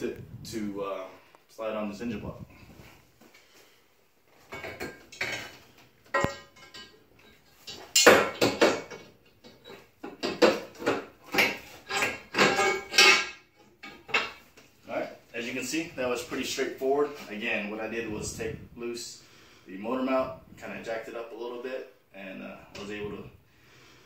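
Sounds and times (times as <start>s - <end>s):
metal manifold clanking and scraping: 4.4s - 14.5s.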